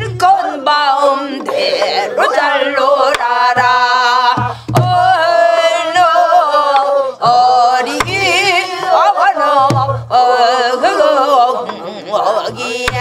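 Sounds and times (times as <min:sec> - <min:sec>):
voices singing folk song: 0:00.0 - 0:13.0
deep barrel drum strokes: 0:03.6 - 0:05.2.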